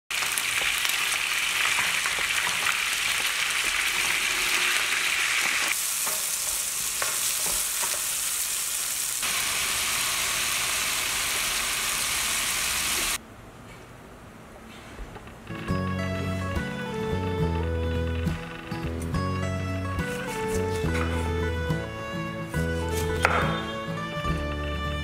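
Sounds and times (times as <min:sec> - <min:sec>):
ribs frying in hot oil: 0:00.1 - 0:13.2
tomatoes sizzling: 0:00.1 - 0:13.2.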